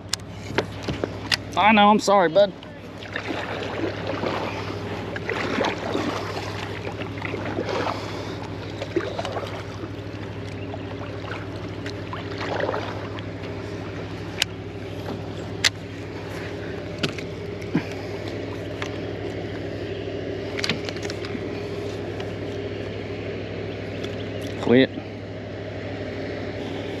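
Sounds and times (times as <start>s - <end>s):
steady low hum: 0.0s - 27.0s
paddle water swishes: 2.4s - 19.8s.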